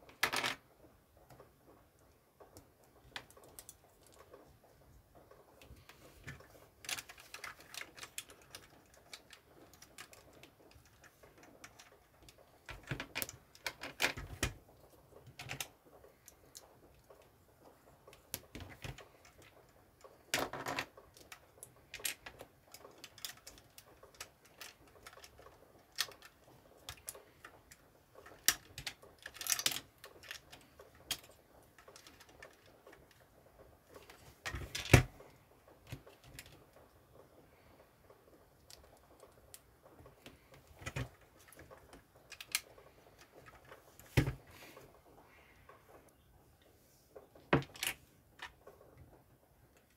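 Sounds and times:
plastic bricks clicking together: 0:00.1 - 0:00.7, 0:05.6 - 0:17.2, 0:18.0 - 0:35.2, 0:38.6 - 0:44.4.

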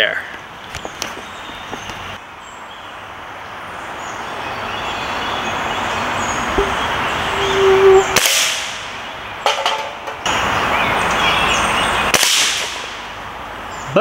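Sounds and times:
rushing noise: 0:05.5 - 0:09.0
pellet rifle shot: 0:12.1 - 0:13.0.

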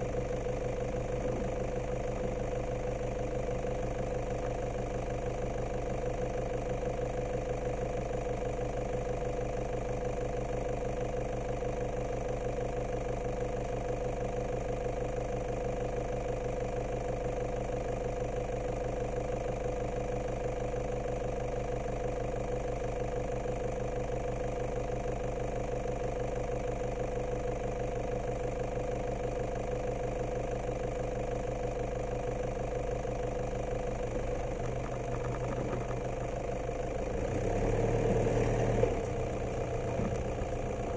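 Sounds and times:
vehicle engine humming: 0:00.0 - 0:07.5, 0:32.2 - 0:40.9.

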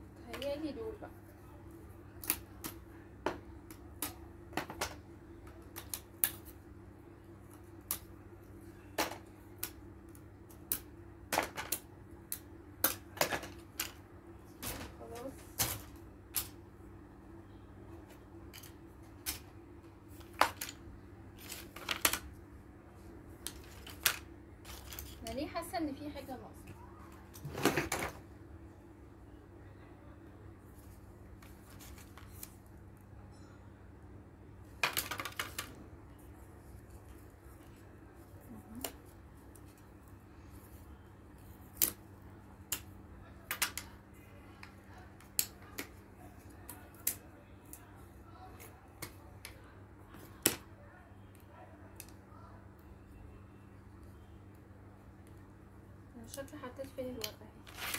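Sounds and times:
faint steady hum: 0:00.0 - 0:57.9
light rustling of plastic pieces: 0:18.1 - 0:22.3, 0:23.3 - 0:25.6.

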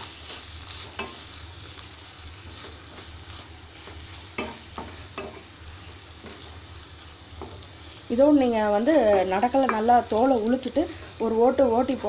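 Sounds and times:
light sizzle: 0:00.0 - 0:12.0
spatula tapping and scraping pan: 0:00.3 - 0:01.3, 0:03.8 - 0:06.6, 0:07.2 - 0:07.9, 0:08.8 - 0:12.0.

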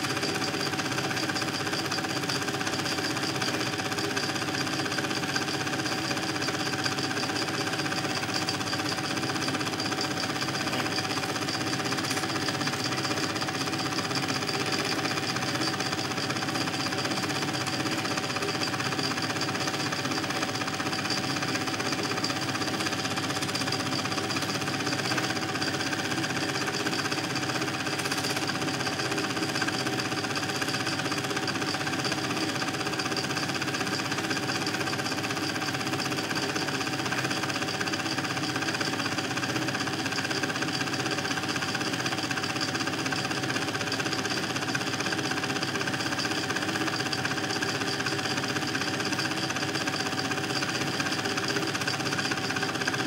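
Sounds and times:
projector whine: 0:00.0 - 0:34.2
film projector clattering: 0:00.0 - 0:53.0.

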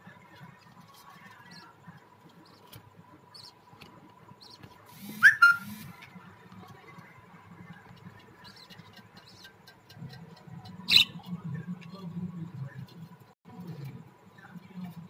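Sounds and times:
budgies chirping: 0:01.1 - 0:05.9, 0:08.2 - 0:11.3
harsh bird squawk: 0:05.0 - 0:05.8.

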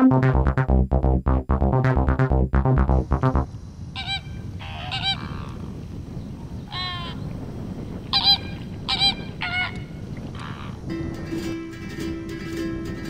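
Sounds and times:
flamingos honking: 0:04.0 - 0:05.6, 0:06.7 - 0:07.2, 0:08.1 - 0:10.8.

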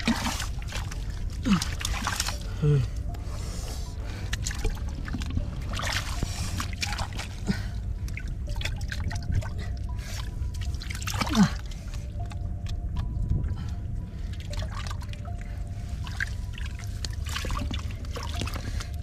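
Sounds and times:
hands squelching in wet mud: 0:00.0 - 0:02.9, 0:04.1 - 0:12.0, 0:16.0 - 0:19.0.

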